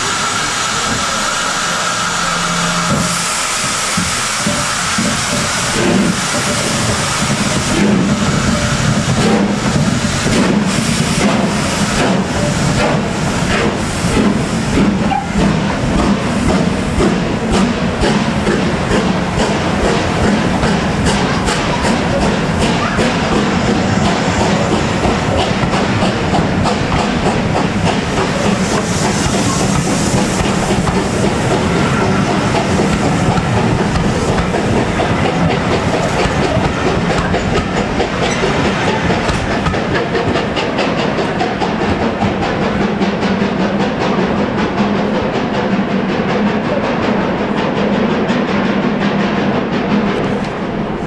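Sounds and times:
steam hissing: 0.0s - 44.6s
train wheels clicking over rail joints: 2.4s - 51.0s.

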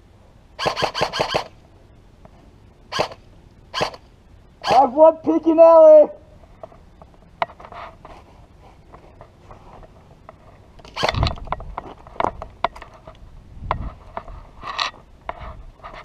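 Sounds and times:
rifle scraping and thumping: 7.4s - 16.0s.

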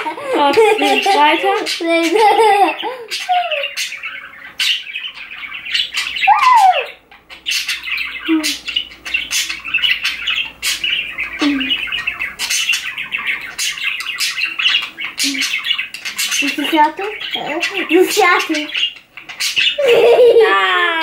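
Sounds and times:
budgerigars chattering: 0.0s - 20.4s.

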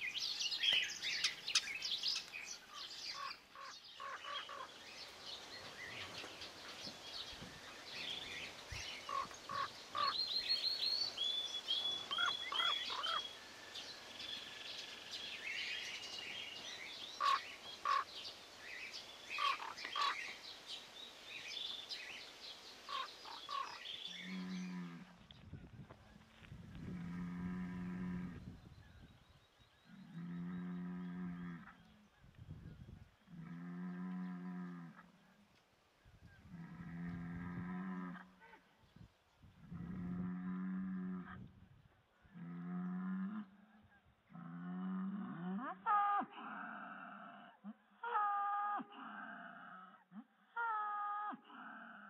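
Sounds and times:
harsh bird calls: 0.0s - 13.9s, 15.1s - 20.4s, 22.9s - 25.0s
bird chirps: 0.0s - 18.1s.

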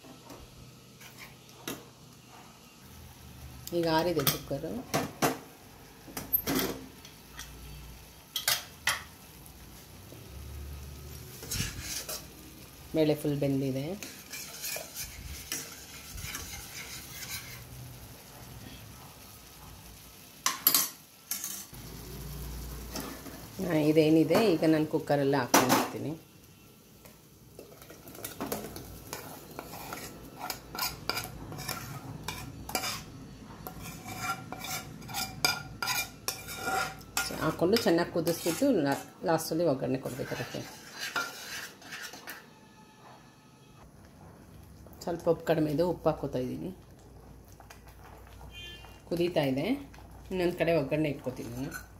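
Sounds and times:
metal spoon scraping steel bowl: 11.3s - 12.3s, 14.0s - 17.8s, 20.7s - 21.7s, 29.1s - 39.1s, 39.9s - 42.6s, 51.3s - 51.9s.

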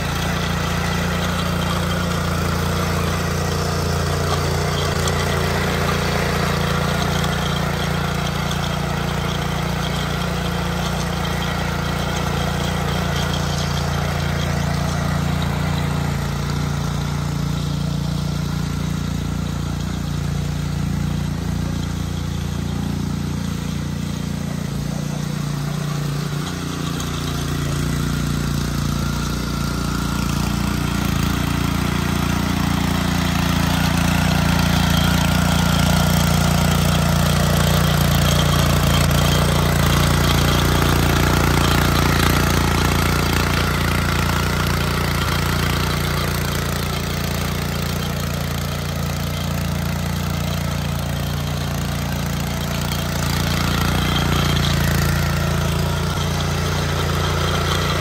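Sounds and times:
tiller engine running: 0.0s - 58.0s
tines churning soil: 0.0s - 58.0s.

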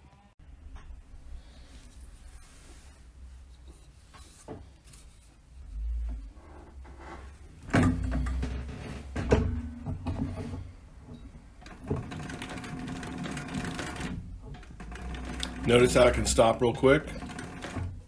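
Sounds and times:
sewing machine stitching leather: 7.1s - 18.0s.

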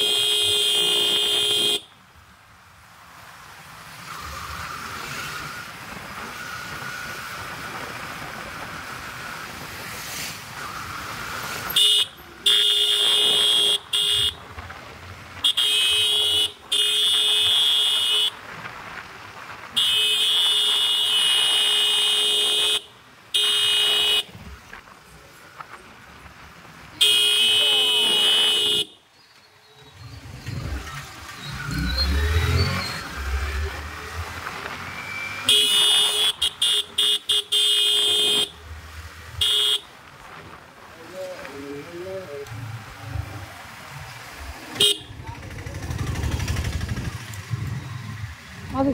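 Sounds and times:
motorcycle horn blasts: 0.0s - 1.8s, 11.8s - 14.4s, 27.0s - 29.0s, 35.4s - 38.6s, 39.4s - 39.8s, 44.8s - 45.1s
motorcycle engine running: 45.0s - 48.0s.

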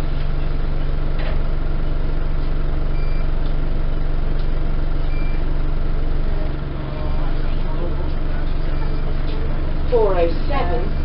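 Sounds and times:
bus engine drone: 0.0s - 11.0s.

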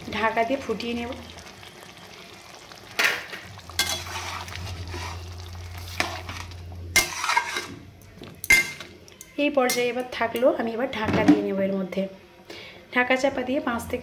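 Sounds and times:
metal spatula scraping a pan: 3.7s - 8.9s.

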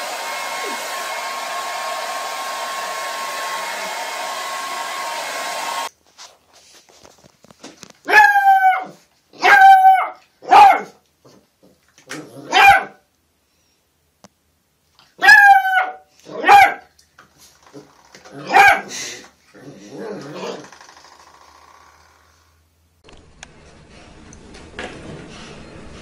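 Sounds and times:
hair dryer whine: 0.0s - 5.9s
puppy yapping: 8.1s - 11.0s, 12.5s - 13.0s, 15.2s - 16.9s, 18.4s - 18.9s.

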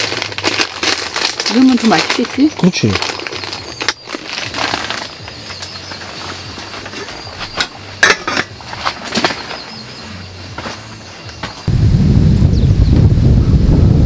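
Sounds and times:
metal pot and lid clinking: 7.6s - 9.4s.

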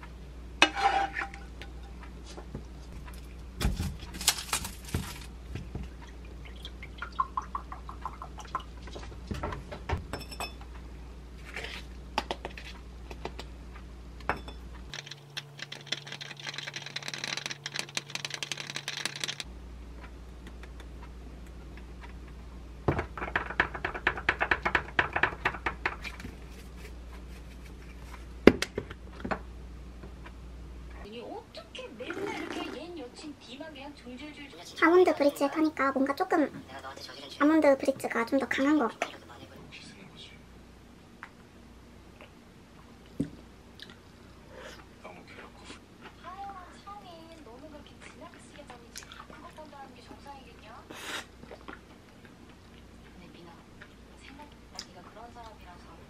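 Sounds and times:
wooden spatula scraping a pan: 0.6s - 1.4s
clinks in a glass: 10.1s - 10.6s
powder mixed into milk: 14.9s - 19.5s.

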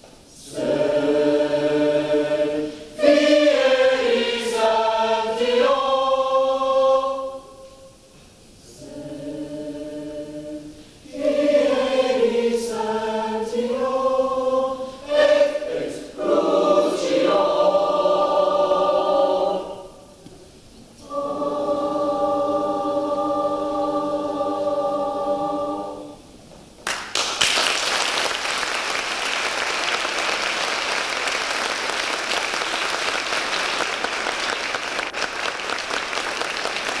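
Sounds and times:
youth choir holding a chord: 0.3s - 8.0s, 8.6s - 20.3s, 20.9s - 26.3s
audience applause: 26.8s - 37.0s.

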